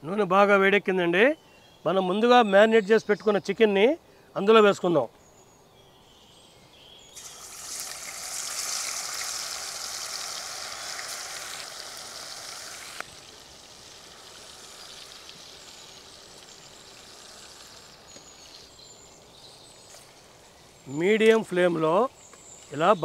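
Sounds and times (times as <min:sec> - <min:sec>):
chicken sizzling in hot oil: 0:07.2 - 0:18.8.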